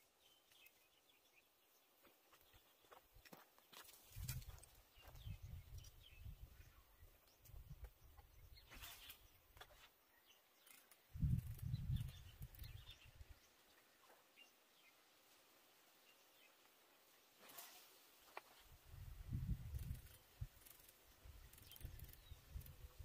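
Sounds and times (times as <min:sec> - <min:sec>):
faint bird chirps: 0:04.2 - 0:15.0, 0:19.5 - 0:23.0.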